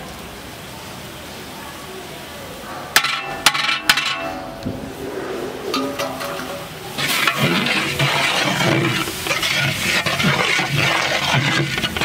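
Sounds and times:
metal ladle scraping pot: 5.7s - 12.0s
onions sizzling in oil: 6.9s - 12.0s.

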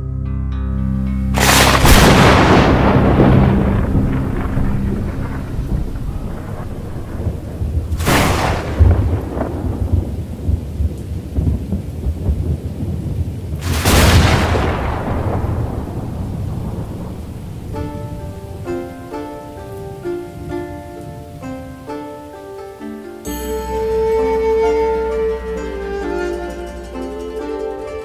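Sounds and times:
steady rain-like hiss: 1.0s - 28.0s
thunderclaps rolling into rumble: 1.4s - 21.9s.

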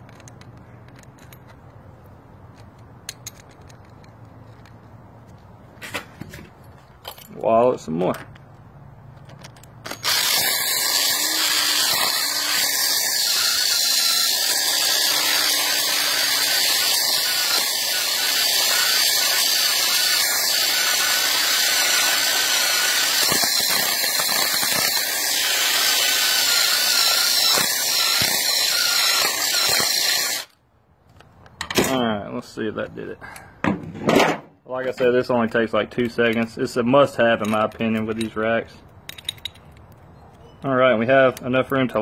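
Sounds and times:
electric drill grinding: 9.8s - 30.6s.

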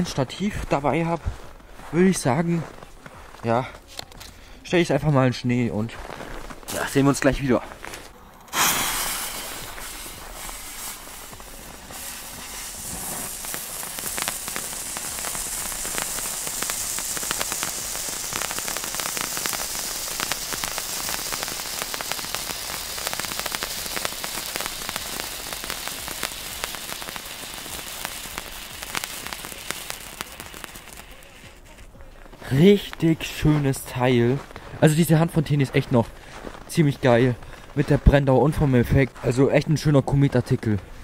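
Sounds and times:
spark fountain hissing and crackling: 8.3s - 35.9s.

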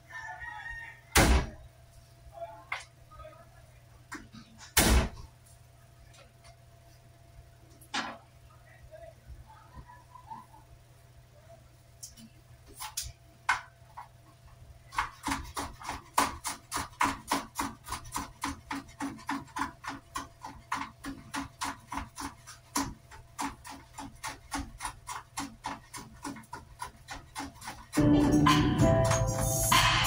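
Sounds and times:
knife chopping on wooden board: 14.9s - 28.0s.

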